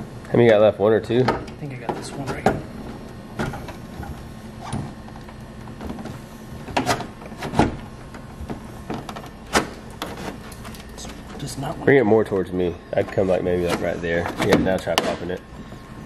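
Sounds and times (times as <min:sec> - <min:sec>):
plastic grille creaking and scraping: 0:01.6 - 0:11.4.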